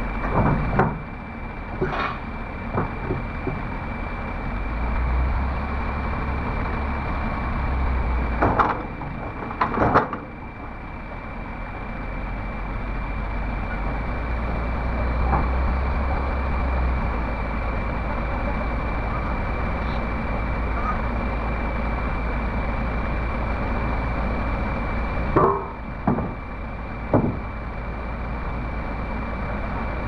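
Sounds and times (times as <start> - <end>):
excavator diesel engine running: 0.0 - 30.0
loud metallic clunks: 25.4 - 26.5, 27.1 - 27.5.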